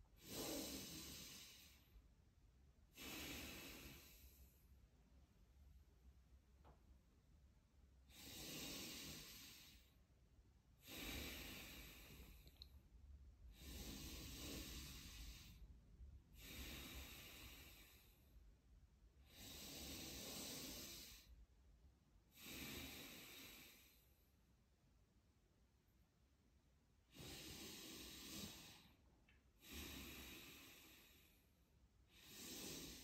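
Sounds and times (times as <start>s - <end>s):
man breathing deeply: 0.1s - 2.0s, 2.9s - 4.8s, 8.1s - 10.0s, 10.8s - 12.7s, 13.4s - 18.4s, 19.2s - 21.4s, 22.3s - 24.2s, 27.0s - 33.0s.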